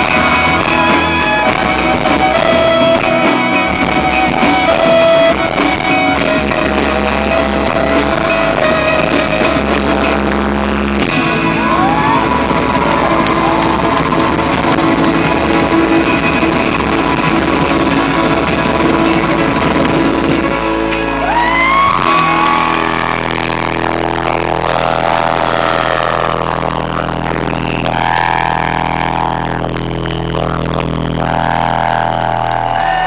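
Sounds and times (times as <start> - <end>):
live rock band playing: 0.0 - 33.0
person singing long high notes: 21.3 - 33.0.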